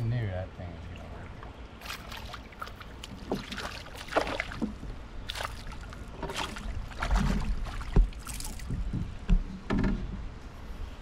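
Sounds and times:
fish splashing in water: 1.8 - 8.8.

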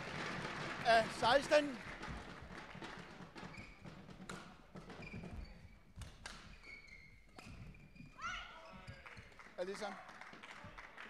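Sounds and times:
shoes squeaking on court: 3.4 - 9.4.

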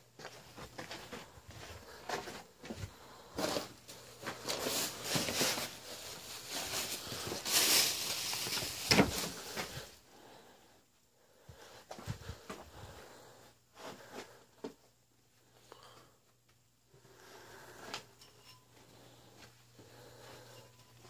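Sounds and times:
rustling and handling noise: 0.1 - 10.4, 11.5 - 21.0
footsteps scuffing over grit: 0.2 - 5.6.

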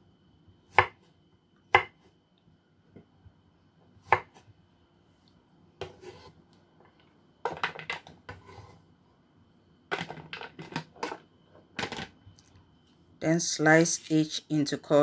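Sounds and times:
knife scraping on board: 5.8 - 6.4, 8.3 - 8.8.

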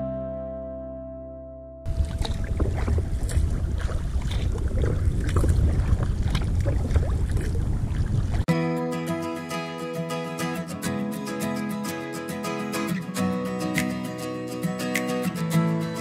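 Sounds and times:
background music: 0.0 - 1.9, 8.5 - 16.0
water lapping against kayak hull: 1.9 - 8.5
wind buffeting microphone: 1.9 - 8.5.

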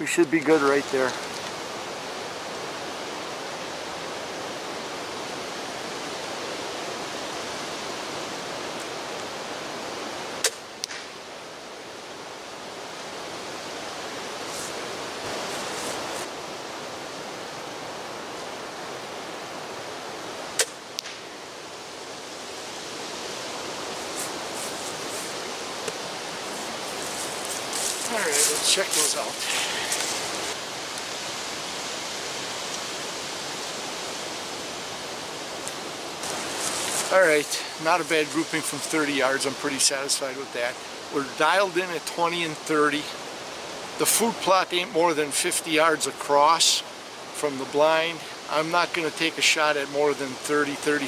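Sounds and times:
steady background noise: 0.0 - 51.0
crossbow string snap: 10.4 - 11.1, 20.6 - 21.3.

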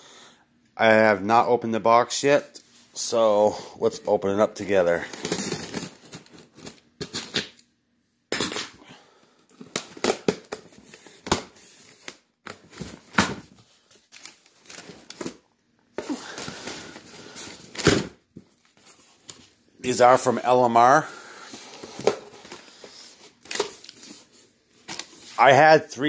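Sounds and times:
tape tearing: 5.1 - 7.6.

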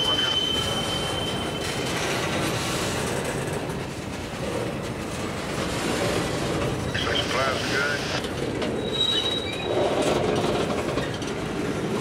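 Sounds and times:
high wheel squeal: 0.0 - 2.3, 8.7 - 10.2
freight train wheels rumbling: 0.0 - 12.0.

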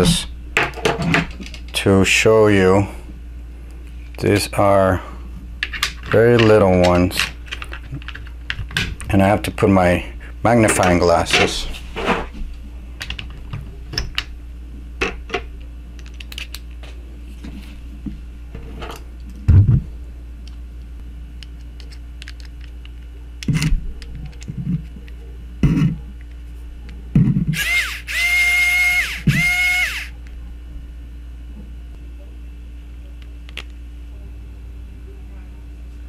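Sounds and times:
electric screwdriver motor whirring: 27.6 - 30.1.

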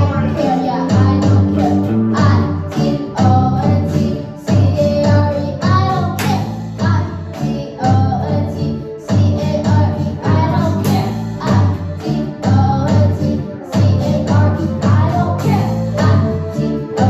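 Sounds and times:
boy singing into microphone: 0.0 - 17.0
electric guitar: 0.0 - 17.0
electronic drum kit: 0.0 - 17.0
electronic keyboards: 0.0 - 17.0.

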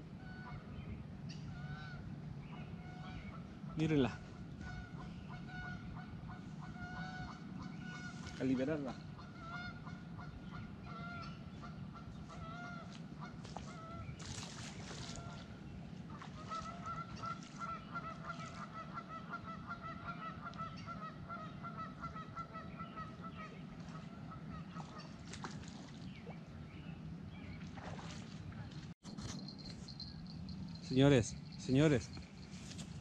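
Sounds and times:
geese honking: 2.8 - 14.0, 16.4 - 25.2.

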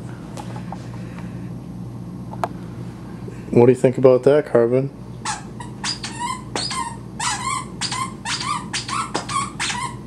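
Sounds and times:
dog whining: 5.2 - 10.0.

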